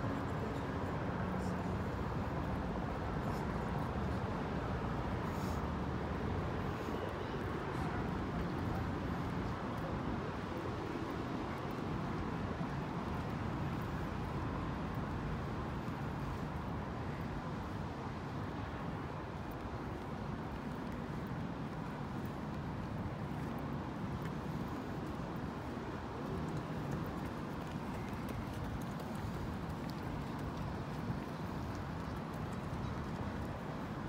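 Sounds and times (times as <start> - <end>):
city traffic hum: 0.0 - 34.0
falling rain: 18.6 - 34.0.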